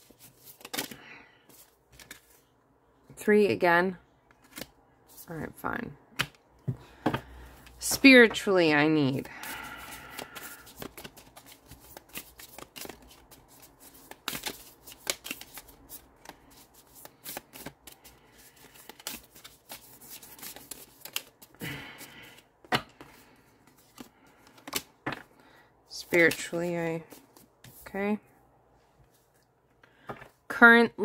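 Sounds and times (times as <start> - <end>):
cards being shuffled: 0.0 - 2.5, 4.3 - 5.3, 9.2 - 21.6, 22.3 - 25.3.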